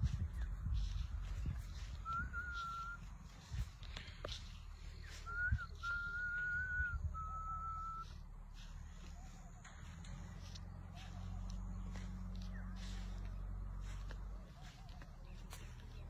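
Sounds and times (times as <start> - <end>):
low rumble: 0.0 - 16.0
person whistling: 1.9 - 3.1, 5.1 - 8.1.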